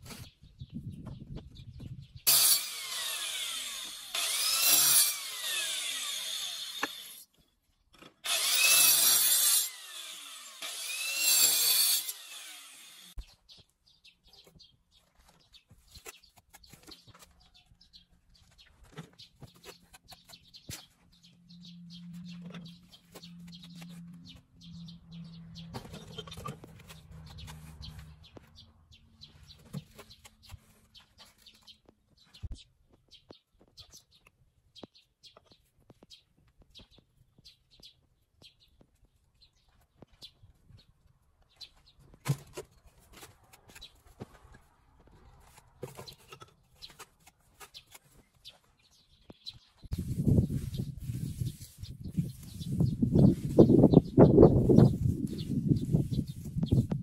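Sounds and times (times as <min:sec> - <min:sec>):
cutting tool motor whine: 0:02.3 - 0:07.2, 0:08.2 - 0:13.2.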